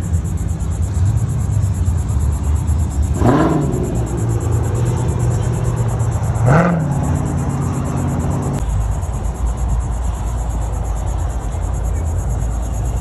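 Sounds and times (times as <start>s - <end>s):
car engine rumbling and revving: 0.0s - 10.4s.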